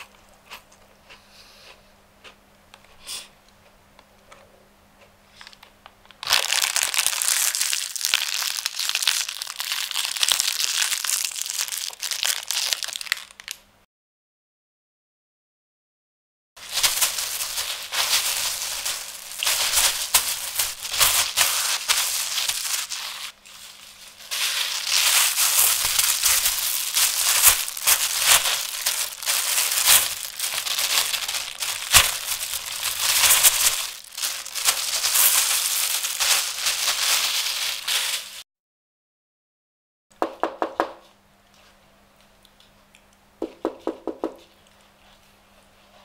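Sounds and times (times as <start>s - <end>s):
plastic bag crackling: 6.2s - 13.6s, 16.6s - 38.4s.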